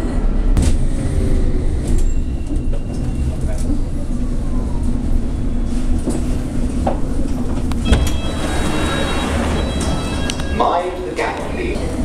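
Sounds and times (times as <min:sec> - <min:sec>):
low rumble of stopped train: 0:00.0 - 0:12.0
train doors sliding open: 0:05.6 - 0:12.0
door clunk: 0:07.5 - 0:08.4
high steady tone: 0:07.8 - 0:11.6.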